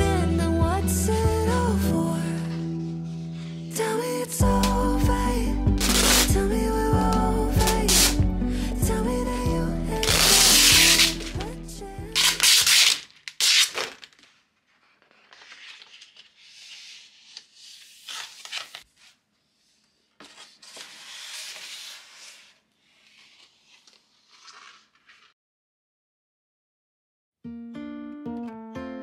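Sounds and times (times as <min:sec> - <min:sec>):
song playing: 0:00.0 - 0:12.2
paper and board sliding: 0:05.8 - 0:06.4, 0:07.6 - 0:08.2, 0:10.0 - 0:11.4, 0:12.3 - 0:25.4
plastic film peeling: 0:05.8 - 0:06.4, 0:07.1 - 0:08.2, 0:10.0 - 0:11.5, 0:12.2 - 0:16.4, 0:17.4 - 0:18.9.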